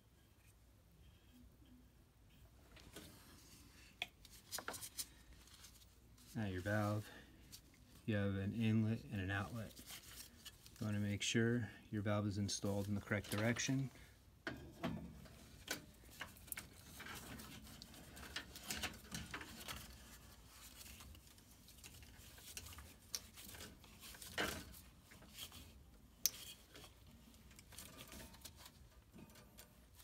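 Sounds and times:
glove rustling: 8.7s - 11.1s.

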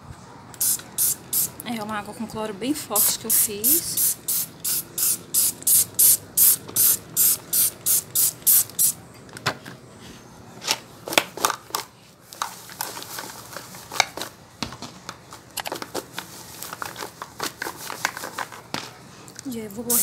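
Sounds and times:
spray bottle squirting: 0.6s - 1.6s, 3.0s - 9.0s.

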